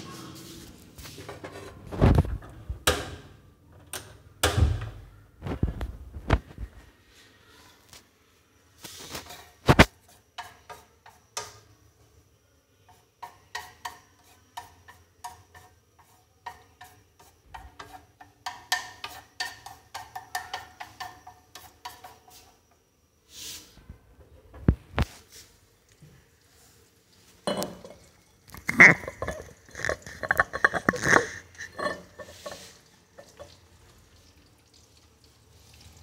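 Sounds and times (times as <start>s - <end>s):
utensil scraping frying pan: 8.8s - 11.7s, 12.9s - 22.6s, 28.5s - 33.6s.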